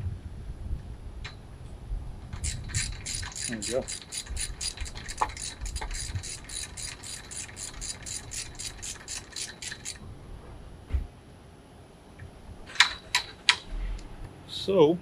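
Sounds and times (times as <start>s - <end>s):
ratchet wrench clicking: 2.4s - 10.0s.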